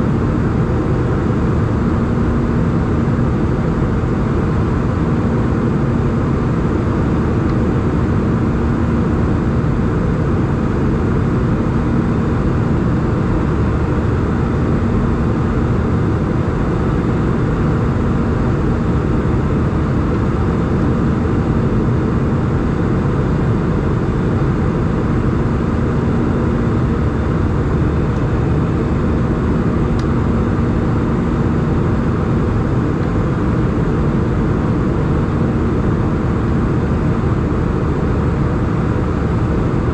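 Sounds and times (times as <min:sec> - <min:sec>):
airplane cabin engine rush: 0:00.0 - 0:39.9.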